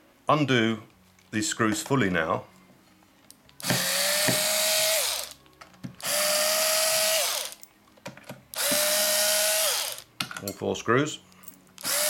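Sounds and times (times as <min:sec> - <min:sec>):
electric screwdriver whining: 0:03.6 - 0:05.4, 0:06.0 - 0:07.6, 0:08.6 - 0:10.1, 0:11.8 - 0:12.0.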